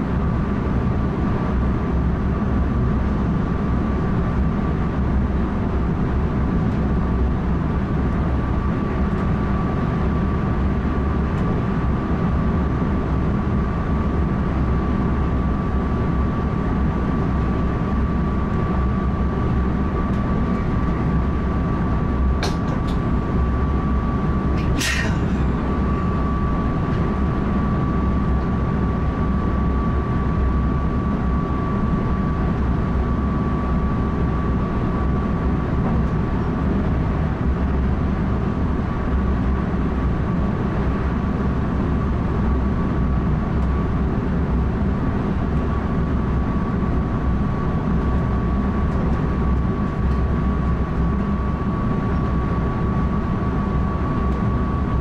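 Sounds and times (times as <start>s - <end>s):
wheels rumbling on rail: 24.5s - 27.5s.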